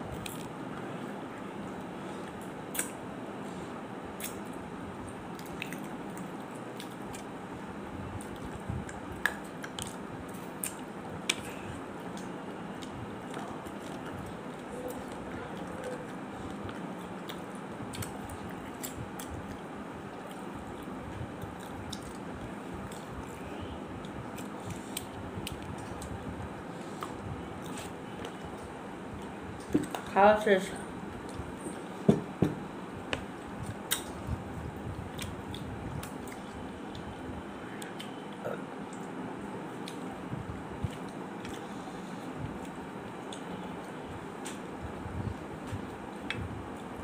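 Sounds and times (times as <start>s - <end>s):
chewing: 5.3s - 7.3s.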